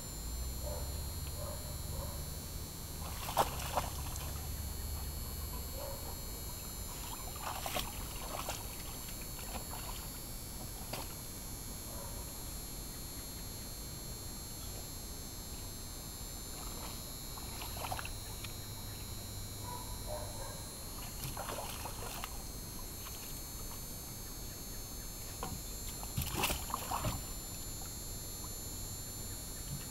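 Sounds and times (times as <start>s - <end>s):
water sloshing in a pool: 2.9s - 11.3s, 16.4s - 19.1s, 19.7s - 24.0s, 25.3s - 28.6s
sharp splashes: 3.0s - 4.4s, 7.0s - 10.1s, 16.6s - 18.1s, 21.0s - 22.4s, 26.2s - 27.3s.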